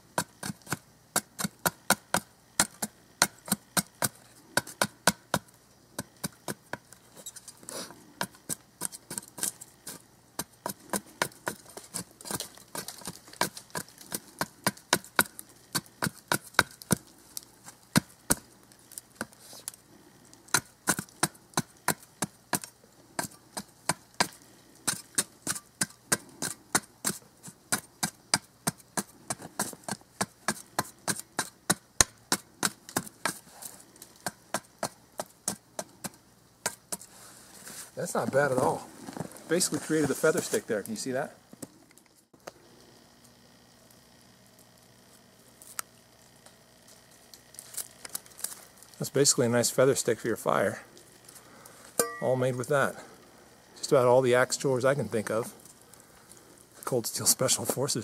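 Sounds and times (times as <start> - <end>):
shovel edge shaving a stick: 0.2 - 19.8, 20.5 - 41.1.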